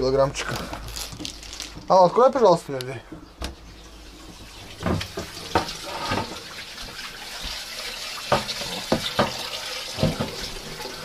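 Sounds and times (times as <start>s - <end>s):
tap running into a sink: 4.3s - 11.0s.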